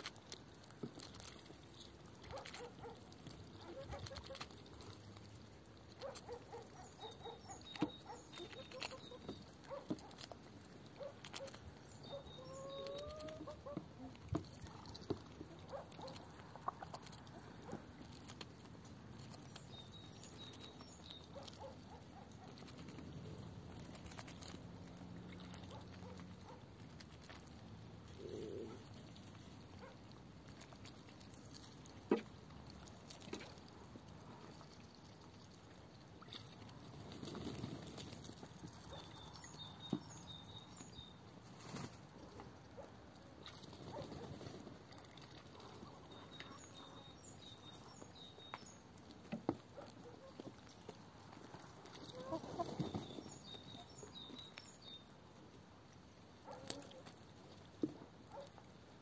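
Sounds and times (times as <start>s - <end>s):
birds pecking: 0.0s - 59.0s
hen clucking: 12.1s - 14.1s, 52.0s - 53.0s.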